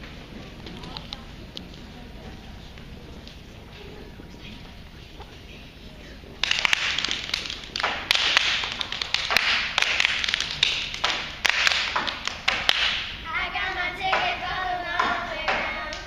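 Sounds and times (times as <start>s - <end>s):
sharp claps and stomps: 6.4s - 13.2s.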